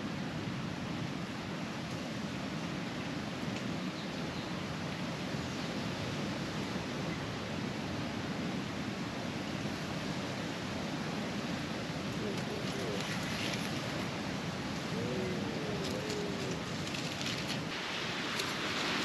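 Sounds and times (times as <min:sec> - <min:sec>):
rushing outdoor ambient noise: 0:00.0 - 0:19.0.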